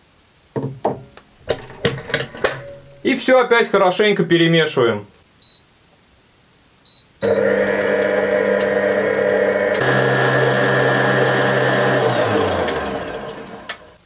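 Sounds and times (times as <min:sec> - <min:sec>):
stand mixer motor whisking: 0:01.4 - 0:03.0, 0:07.2 - 0:14.0
electronic beeps: 0:05.4 - 0:05.6, 0:06.9 - 0:07.4.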